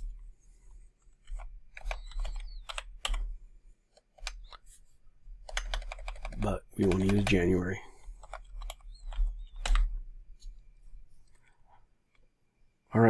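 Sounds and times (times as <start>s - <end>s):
keyboard key clicks: 5.4s - 7.4s.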